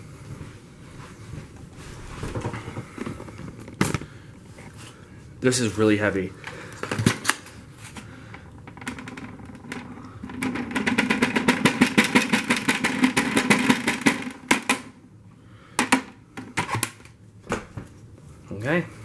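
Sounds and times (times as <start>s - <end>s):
plastic dust bin rattling: 8.8s - 14.8s.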